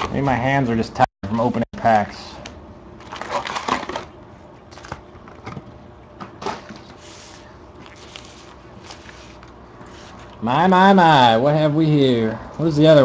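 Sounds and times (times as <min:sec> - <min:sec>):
card packs rustling: 0:03.0 - 0:05.6.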